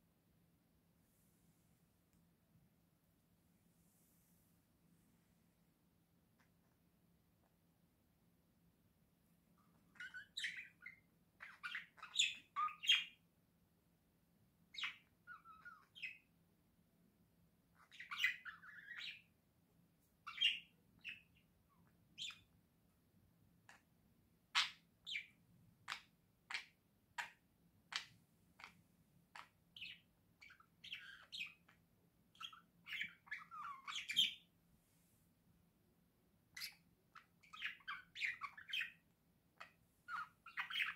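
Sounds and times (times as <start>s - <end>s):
budgerigars chirping and warbling: 9.7s - 13.2s, 14.7s - 16.3s, 17.8s - 19.3s, 20.3s - 21.5s, 22.2s - 22.5s, 24.6s - 34.5s, 36.6s - 39.0s, 39.6s - 40.9s.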